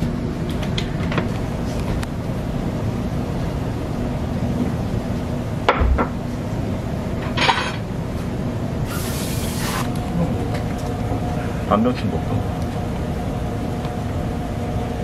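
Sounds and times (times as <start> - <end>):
hiss: 8.8 - 9.9
steady low rumble: 9.9 - 15.0.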